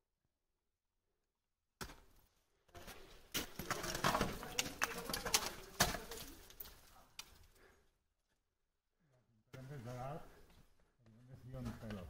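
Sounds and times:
ice tools striking and scraping ice: 0:02.8 - 0:07.4.

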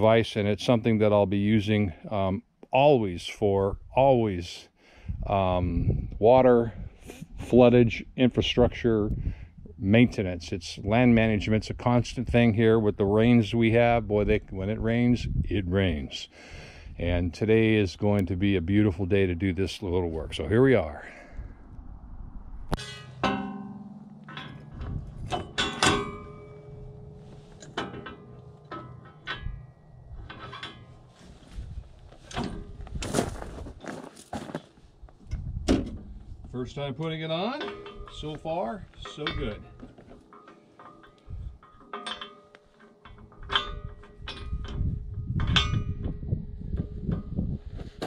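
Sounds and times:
low hum: 0:20.1 - 0:33.6
low rustling: 0:20.9 - 0:36.7
metal clanks and knocks: 0:22.7 - 0:34.0, 0:37.3 - 0:48.0.

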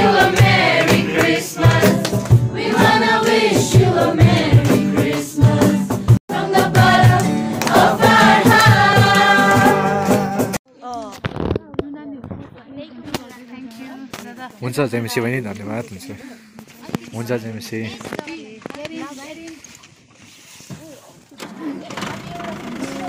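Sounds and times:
group singing a carol: 0:00.0 - 0:10.6
people clapping along: 0:00.0 - 0:10.6
acoustic guitar: 0:00.0 - 0:14.6, 0:20.8 - 0:23.0.

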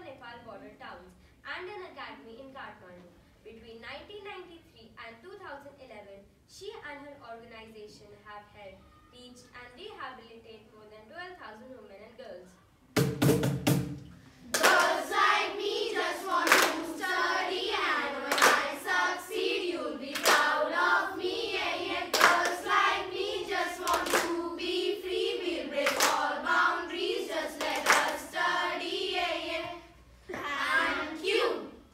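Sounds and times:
sharp hand claps: 0:14.5 - 0:15.3, 0:16.3 - 0:16.9, 0:18.3 - 0:18.7, 0:20.1 - 0:20.5, 0:22.1 - 0:22.8, 0:23.8 - 0:24.4, 0:25.8 - 0:26.2, 0:27.6 - 0:28.2
girls singing in unison: 0:14.5 - 0:31.9.

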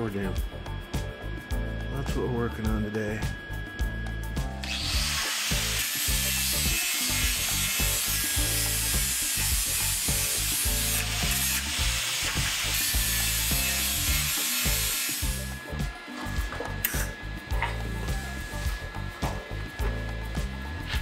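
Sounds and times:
background music: 0:00.0 - 0:21.0
angle grinder cutting steel: 0:04.6 - 0:21.0.

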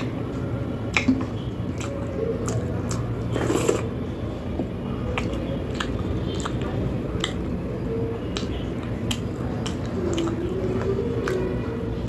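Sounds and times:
fingers squishing wet food: 0:00.8 - 0:03.8, 0:05.0 - 0:12.0
chewing: 0:01.7 - 0:04.0, 0:05.0 - 0:12.0.

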